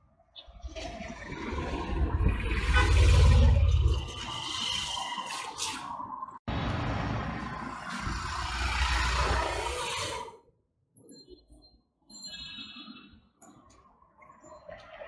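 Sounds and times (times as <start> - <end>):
road traffic rumble: 0.6 - 5.0, 6.5 - 10.2.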